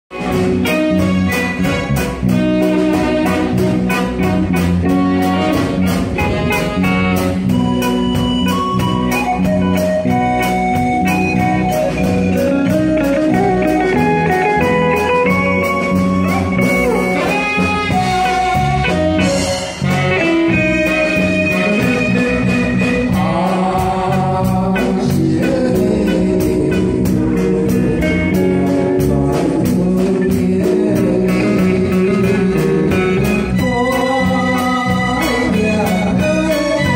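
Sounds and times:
drum kit beat: 0.1s - 36.9s
guitar and keyboard melody: 0.1s - 36.9s.

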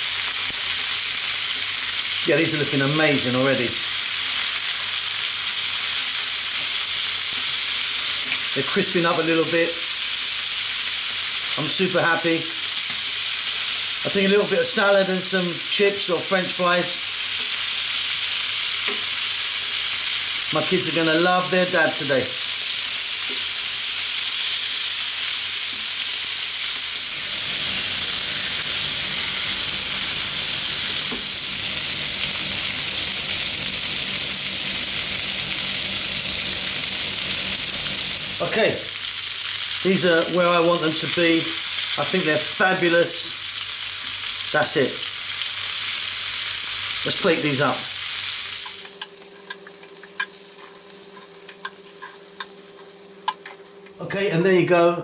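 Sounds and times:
meat sizzling on griddle: 0.0s - 54.1s
metal tongs clicking on pan: 48.6s - 52.6s, 53.2s - 54.0s.

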